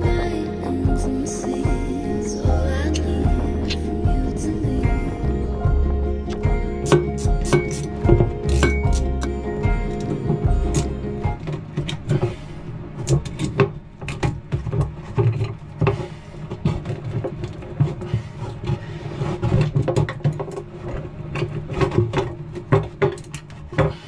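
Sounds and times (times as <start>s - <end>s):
low hum: 0.0s - 19.0s
knocking and clattering: 6.3s - 12.4s, 19.4s - 24.0s.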